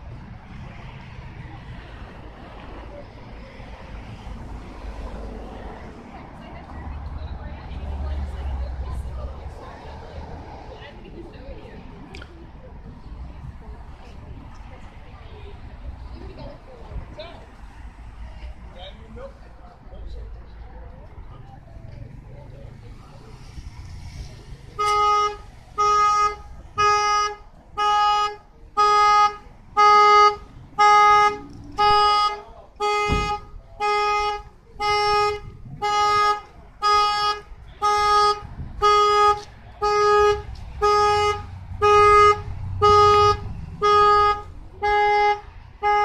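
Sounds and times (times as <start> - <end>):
car horn alarm blasts: 24.8 - 46.0.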